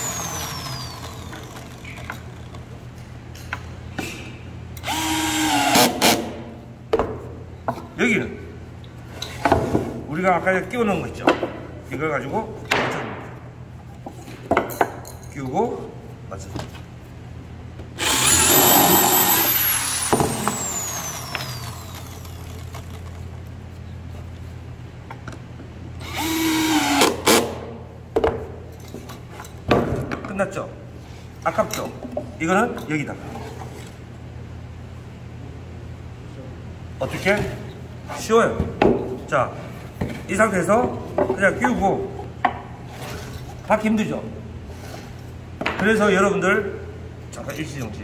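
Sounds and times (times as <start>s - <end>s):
drill-driver motor whine: 0.0s - 1.6s, 4.8s - 5.9s, 18.0s - 22.9s, 26.0s - 27.1s.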